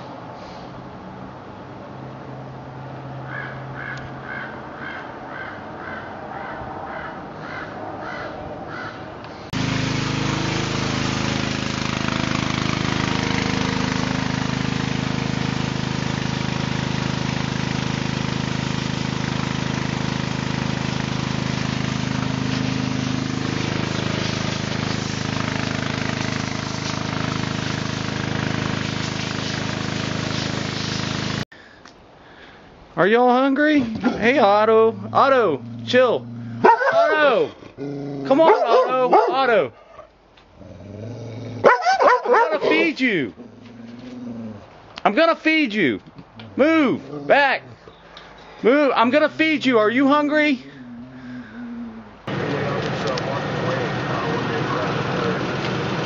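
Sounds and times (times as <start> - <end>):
bird calling: 3.3 - 9.1
pressure washer spraying wood: 9.4 - 31.5, 52.3 - 56.0.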